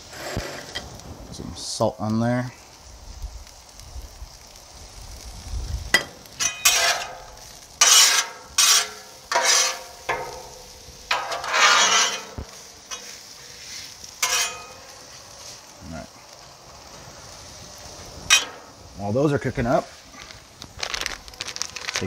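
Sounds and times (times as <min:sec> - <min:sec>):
metal spatula scraping griddle: 0:00.0 - 0:00.9, 0:05.9 - 0:15.7, 0:17.4 - 0:18.8
light sizzle: 0:00.0 - 0:22.0.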